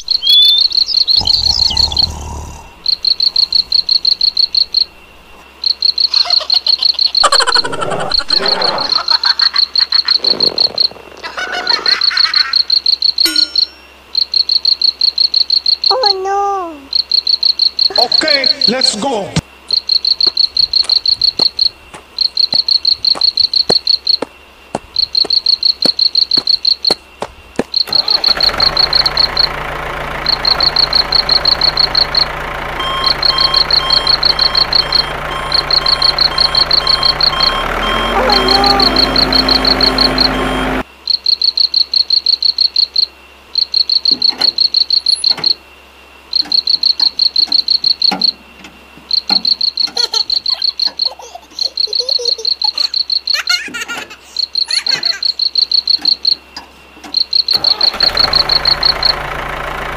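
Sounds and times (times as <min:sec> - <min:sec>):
engine-like drone: 0:00.0 - 0:06.2, 0:07.2 - 0:11.4, 0:27.8 - 0:41.0, 0:57.5 - 0:59.9
crickets chirping: 0:00.0 - 0:59.9.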